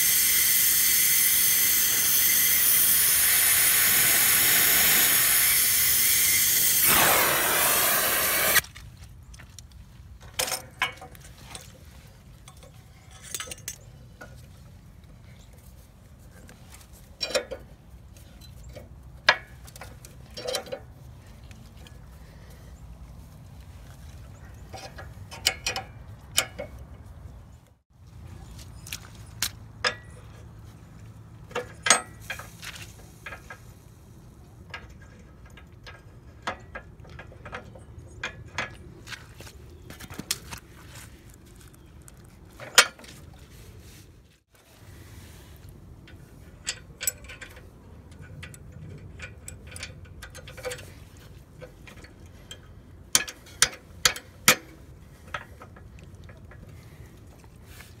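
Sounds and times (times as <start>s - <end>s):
metal clinks and knocks: 12.4s - 14.5s, 46.0s - 56.7s.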